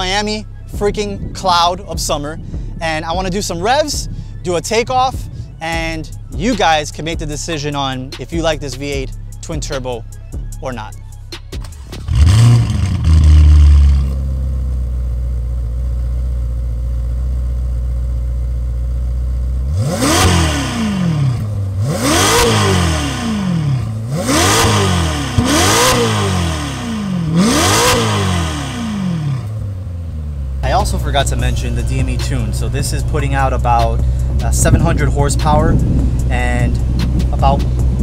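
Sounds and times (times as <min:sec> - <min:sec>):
car engine idling: 0:00.0 - 0:38.0
car engine starting: 0:00.0 - 0:38.0
car engine revving: 0:11.4 - 0:38.0.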